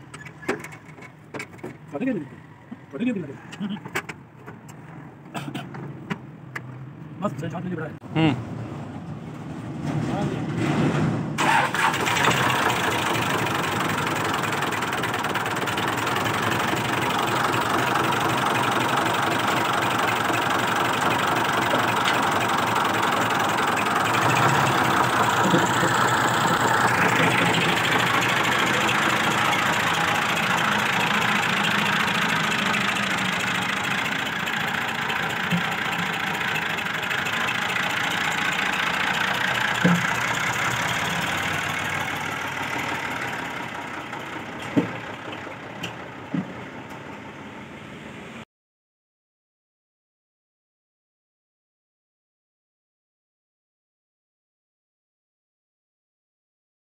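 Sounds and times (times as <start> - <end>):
tractor engine with knocking clatter: 0.0 - 6.8, 9.3 - 47.5.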